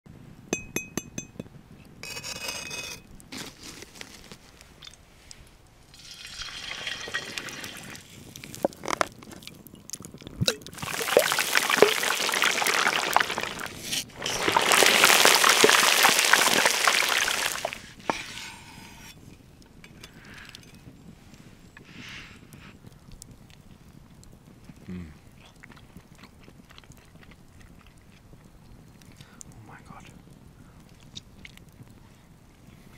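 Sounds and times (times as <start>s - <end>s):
oil pouring into pan: 5.9s - 8.1s, 10.7s - 17.9s
meat sizzling in hot fat: 5.9s - 8.7s, 10.7s - 18.3s.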